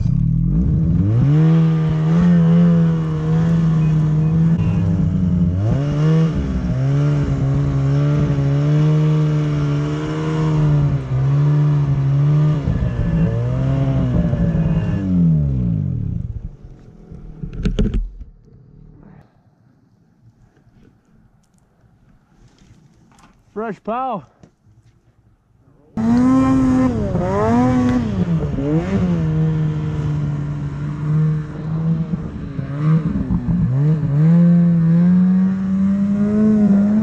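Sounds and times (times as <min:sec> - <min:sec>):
snowmobile engine revving hard: 0:00.0 - 0:16.2, 0:26.0 - 0:37.0.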